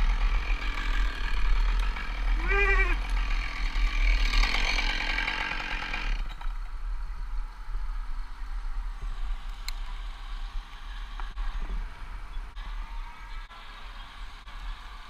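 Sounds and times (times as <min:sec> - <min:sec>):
chainsaw running: 0:00.0 - 0:06.6
wind rumbling on microphone: 0:06.2 - 0:15.0.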